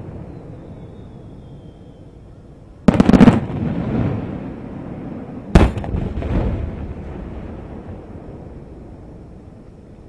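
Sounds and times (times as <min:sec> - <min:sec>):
fireworks bursting: 0:02.9 - 0:04.2, 0:05.5 - 0:06.7.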